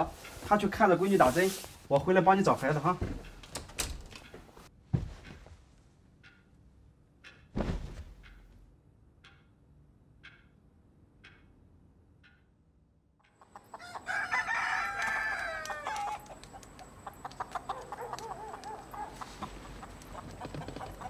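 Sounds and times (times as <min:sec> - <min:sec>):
hens clucking: 0:13.3 - 0:21.0
rooster crowing: 0:13.8 - 0:16.3.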